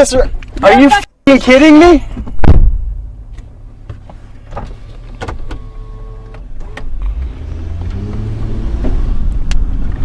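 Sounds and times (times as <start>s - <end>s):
car engine low rumble: 2.0s - 10.0s.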